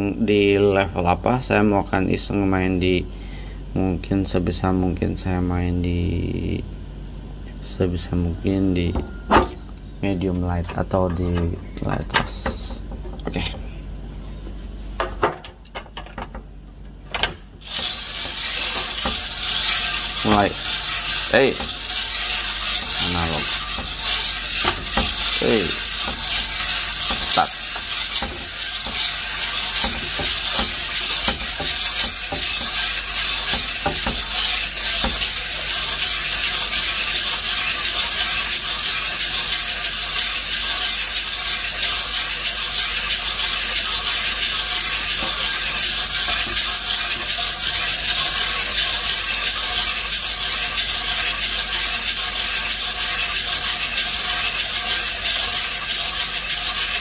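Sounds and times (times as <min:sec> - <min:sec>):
coffee beans rattling in drum: 0:17.6 - 0:57.0
gas burner hissing: 0:17.6 - 0:57.0.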